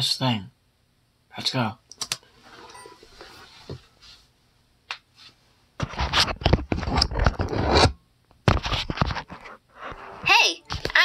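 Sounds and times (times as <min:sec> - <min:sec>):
scraping against microphone: 0:02.3 - 0:04.3, 0:05.2 - 0:10.9.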